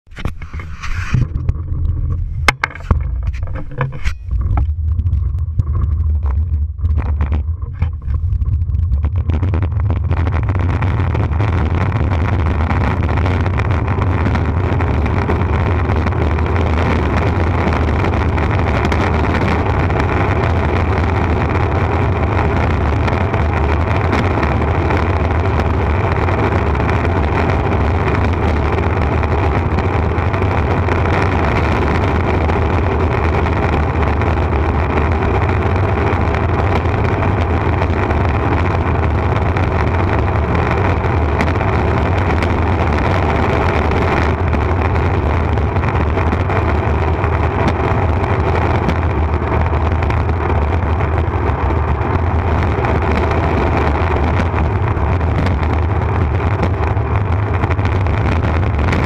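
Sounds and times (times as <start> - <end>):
rushing air: 0.0 - 27.2
wheels rumbling on asphalt: 0.0 - 59.0
knocks and clicks: 0.1 - 8.4.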